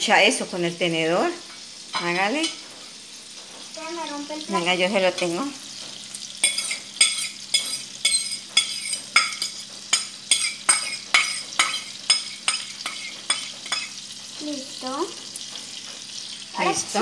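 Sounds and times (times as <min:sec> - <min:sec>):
fork clinking on ceramic plate: 0:06.4 - 0:14.0.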